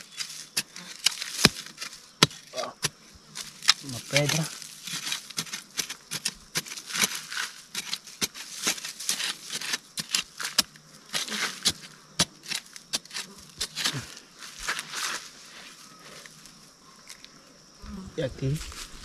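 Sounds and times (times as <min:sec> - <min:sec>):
digging tool striking dry soil: 0:00.0 - 0:15.2.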